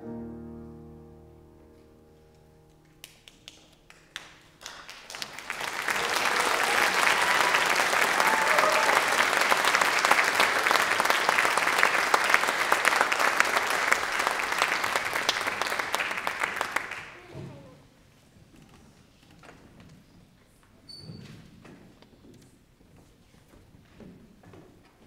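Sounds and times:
audience applauding: 0:03.0 - 0:17.8.

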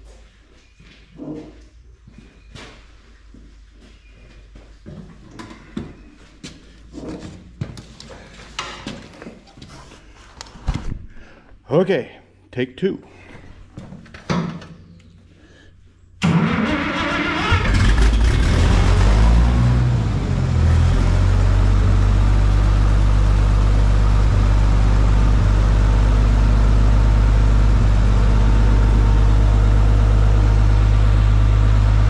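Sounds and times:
tractor engine idling: 0:16.2 - 0:18.4, 0:19.9 - 0:32.0.

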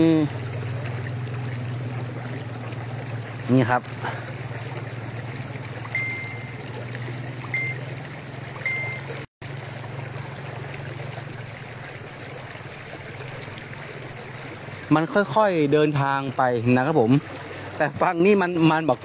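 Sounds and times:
floodwater rushing: 0:00.0 - 0:19.0
short high tones: 0:05.9 - 0:06.6, 0:07.4 - 0:08.0, 0:08.6 - 0:09.2.

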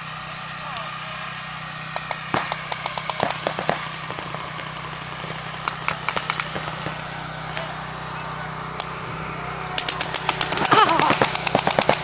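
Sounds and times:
paintball markers popping: 0:09.8 - 0:12.0.

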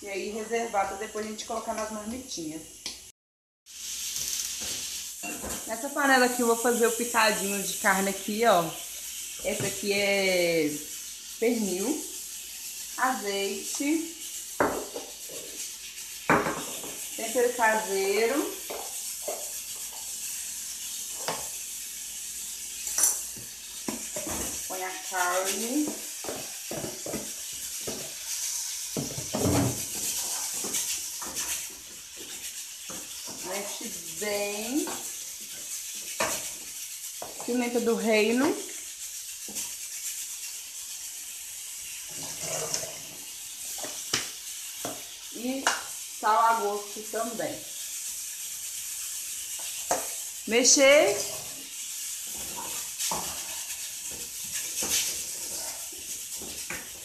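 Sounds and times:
meat sizzling in oil: 0:00.0 - 0:57.0
spatula scraping a pot: 0:13.6 - 0:21.6, 0:22.8 - 0:45.2, 0:47.6 - 0:57.0
utensil scraping and knocking pan: 0:25.4 - 0:33.9, 0:42.1 - 0:43.2, 0:52.3 - 0:57.0.

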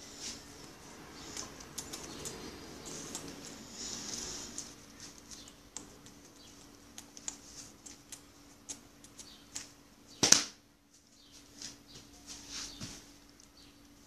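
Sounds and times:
faint steady hum: 0:00.0 - 0:14.0.

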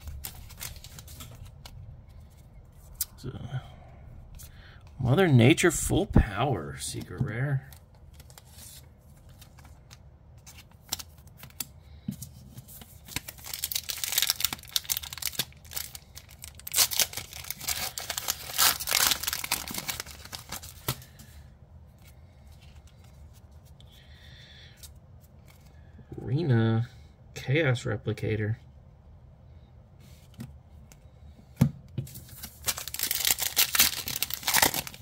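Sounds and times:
cards rustling: 0:00.0 - 0:03.2, 0:05.9 - 0:24.0, 0:32.1 - 0:35.0
foil wrapper tearing and crinkling: 0:13.0 - 0:21.1, 0:32.4 - 0:35.0.

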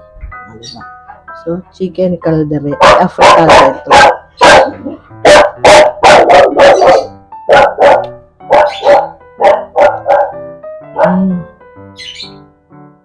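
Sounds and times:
soft background music: 0:00.0 - 0:13.0
dog barking: 0:02.8 - 0:10.4, 0:11.0 - 0:11.3.

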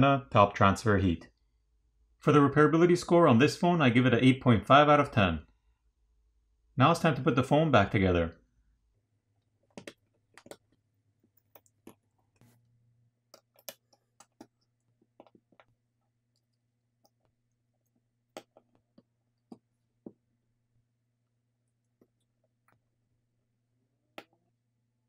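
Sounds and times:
small parts and tools clicking: 0:13.3 - 0:15.7.

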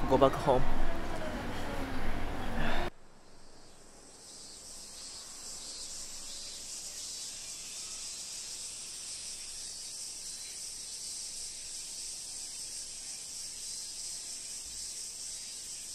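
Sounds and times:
high-pitched insect drone: 0:03.2 - 0:15.9.

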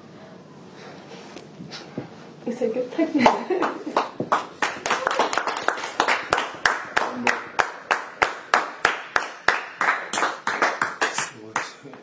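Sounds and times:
small group clapping: 0:03.2 - 0:12.0.

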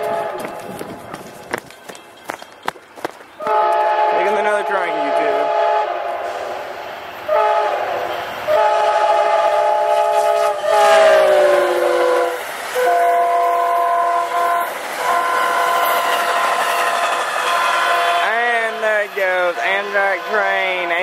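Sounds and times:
train air horn blasts: 0:00.0 - 0:00.8, 0:03.4 - 0:06.6, 0:07.3 - 0:16.0, 0:17.5 - 0:21.0
rumble of train wheels: 0:00.0 - 0:21.0.

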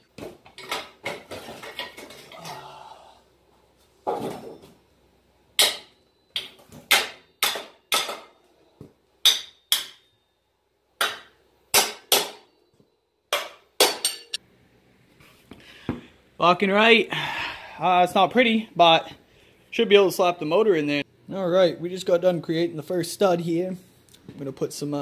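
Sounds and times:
hammer striking metal frame: 0:05.6 - 0:08.4, 0:09.2 - 0:10.1, 0:11.0 - 0:12.6, 0:13.3 - 0:14.4.

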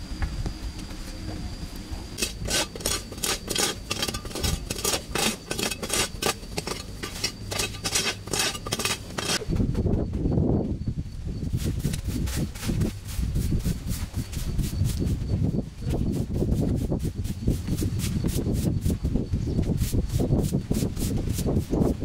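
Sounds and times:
rhythmic scraping strokes: 0:02.2 - 0:09.4.

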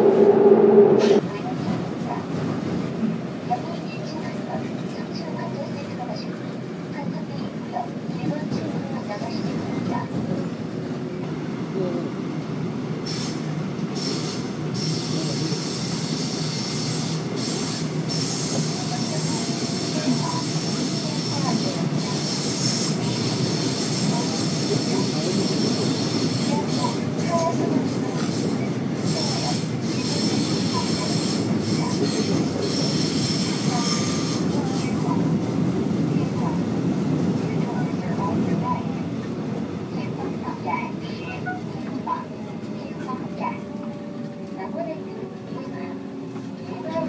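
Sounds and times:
high-pitched wheel squeal: 0:00.0 - 0:01.2
train wheels rumbling on track: 0:00.0 - 0:47.0.

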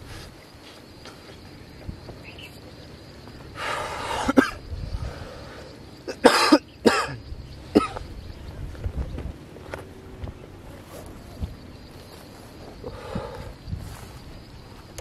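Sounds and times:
person clearing throat: 0:06.1 - 0:07.2
person coughing: 0:06.1 - 0:07.2.

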